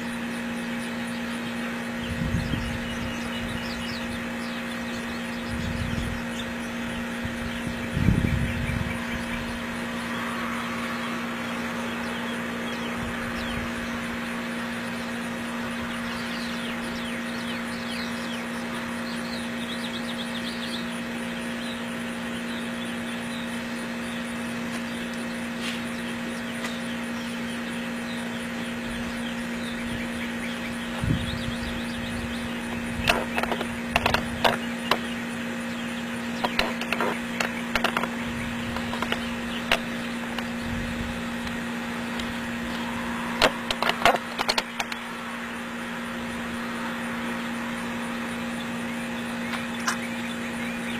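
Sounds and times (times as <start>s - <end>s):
mechanical hum with fixed tones: 0.0s - 50.9s
sharp clicks and knocks: 32.7s - 35.1s, 36.4s - 40.5s, 43.4s - 45.0s.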